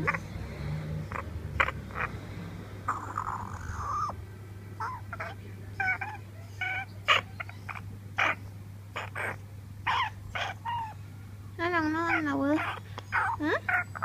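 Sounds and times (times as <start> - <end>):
parrot wavering call: 2.9 - 4.2, 9.0 - 11.0, 12.0 - 14.0.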